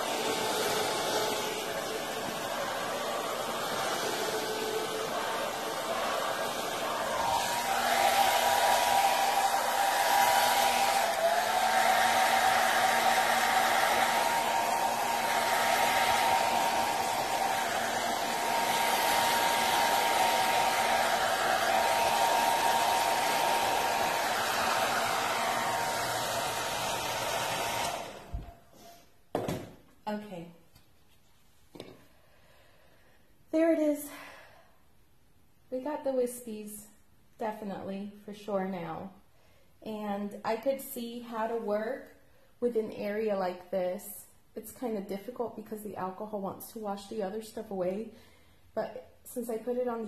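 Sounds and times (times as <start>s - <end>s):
hair dryer blowing: 0.0s - 29.7s.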